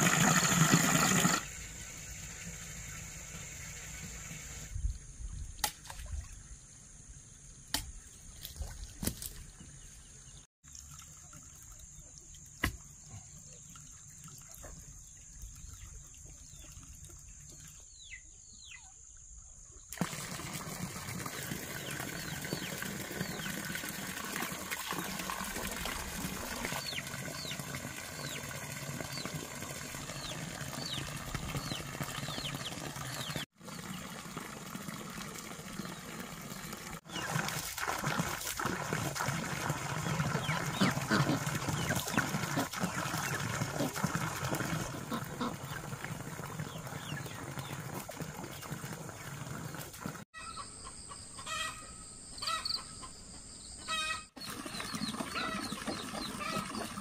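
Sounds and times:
hose water splashing into pond: 0.0 - 18.2, 19.8 - 50.3, 53.9 - 57.0
birds chirping: 30.0 - 34.1, 50.4 - 57.0.

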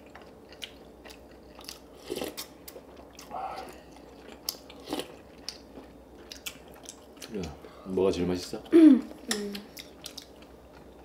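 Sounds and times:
chewing and biting food: 0.0 - 7.6, 9.5 - 11.0.

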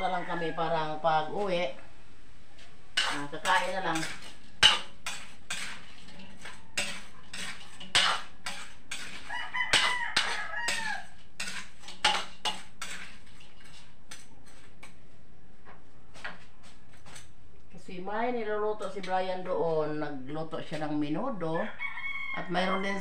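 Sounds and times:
rooster crowing: 0.0 - 1.1, 6.4 - 7.3, 9.2 - 11.2, 21.4 - 23.0
metal spatula scraping a wok: 2.6 - 15.0, 16.6 - 17.4.

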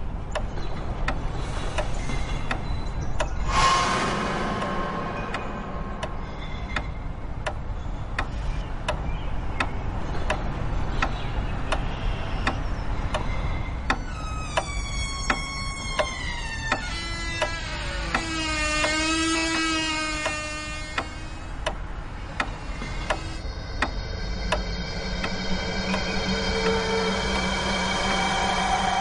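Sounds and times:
layered held tones sliding in pitch: 3.3 - 7.8, 22.2 - 29.0
low held note: 3.4 - 7.4, 23.4 - 29.0
low steady drone: 3.4 - 8.2, 21.1 - 29.0.

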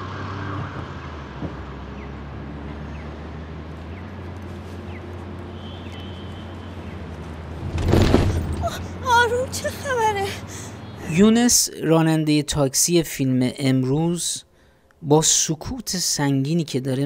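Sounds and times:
low engine hum: 0.0 - 11.1
road noise: 0.0 - 13.6.

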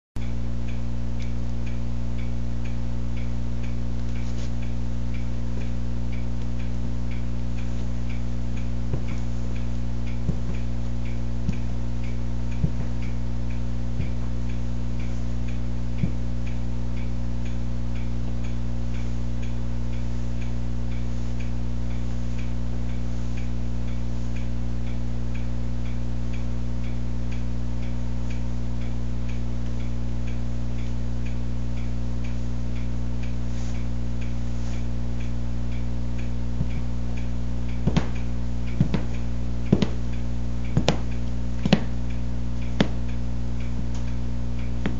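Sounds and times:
faint regular ticking: 0.2 - 44.9
low electrical hum: 0.2 - 44.9
boot heels on hardwood floor: 10.2 - 10.7, 12.6 - 13.0, 37.8 - 38.2, 38.8 - 40.1, 40.8 - 42.0, 42.8 - 43.0.

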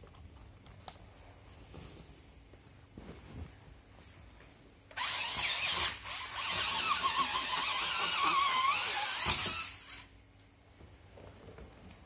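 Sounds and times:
toy electric motor whining: 5.0 - 10.1.

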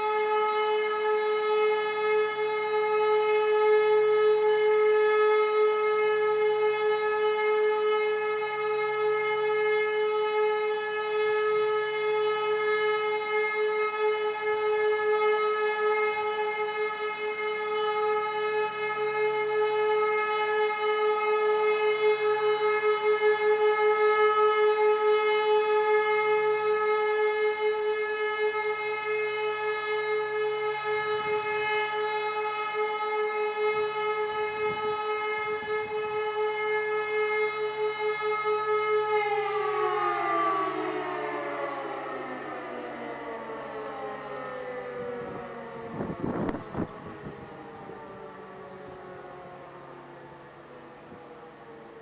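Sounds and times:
civil defence siren steady note: 0.0 - 52.0.

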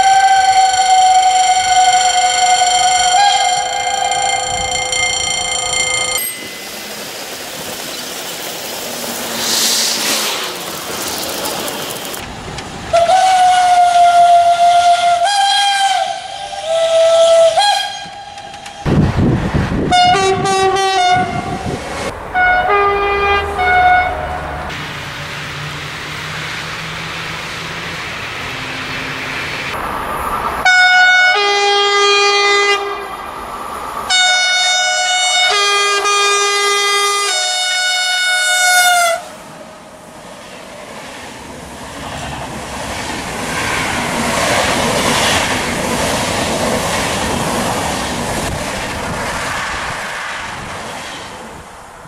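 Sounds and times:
two-tone train horn blasts: 0.0 - 6.2, 12.9 - 18.9, 19.9 - 21.7, 22.3 - 24.5, 30.6 - 33.1, 34.1 - 39.4
wheels clacking over rails: 0.0 - 12.8
train rumbling past: 0.0 - 52.0.

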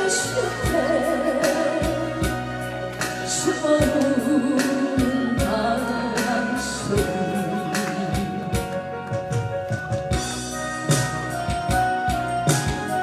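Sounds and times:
woman singing a slow ballad: 0.0 - 9.2
backing track kick drum beat: 7.0 - 13.0.

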